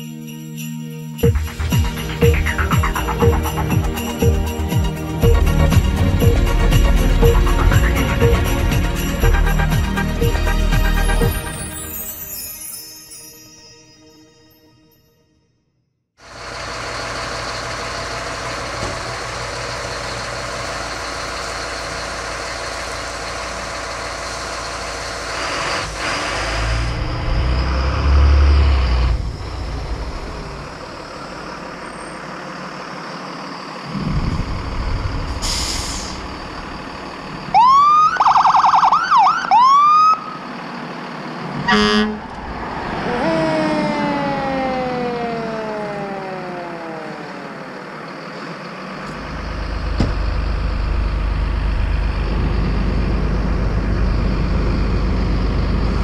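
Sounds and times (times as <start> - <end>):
heavy vehicle rumbling past: 16.2 - 37.8, 40.2 - 56.0
road traffic going by: 16.2 - 56.0
emergency siren whooping: 37.5 - 40.5, 41.7 - 48.6
falling siren wail: 37.5 - 40.5, 41.7 - 48.6.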